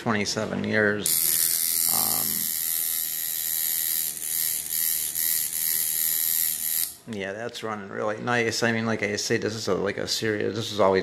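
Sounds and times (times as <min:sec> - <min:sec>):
tattoo machine buzzing: 0:01.0 - 0:07.0.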